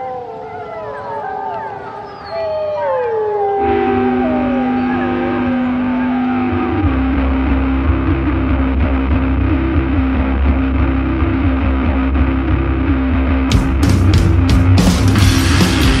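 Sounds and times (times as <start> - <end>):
wavering high gliding tone: 0.0 - 7.6
distorted guitar and bass drone: 3.6 - 16.0.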